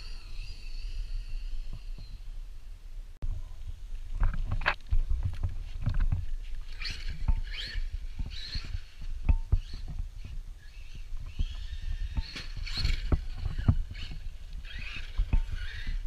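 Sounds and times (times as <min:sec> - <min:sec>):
electric motor whining: 0:00.0 - 0:02.4, 0:06.7 - 0:16.0.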